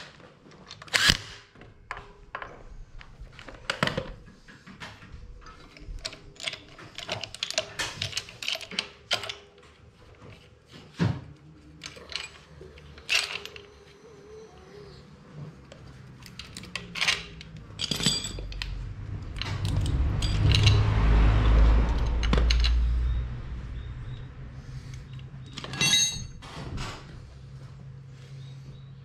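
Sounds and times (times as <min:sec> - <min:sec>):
metal tools clinking: 0:05.4 - 0:09.6, 0:11.8 - 0:14.2, 0:16.2 - 0:23.4, 0:25.0 - 0:26.5
loud low rumble: 0:18.6 - 0:25.0.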